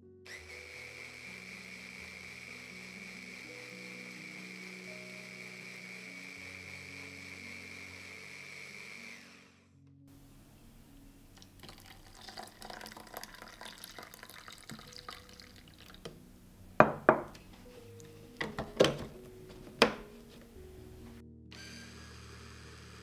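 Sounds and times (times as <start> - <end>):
hard knocks against dishes: 16.8 - 17.3.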